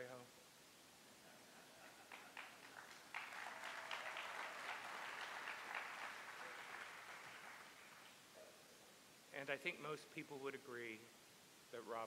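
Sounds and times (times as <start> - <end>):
audience applauding: 1.8 - 8.2.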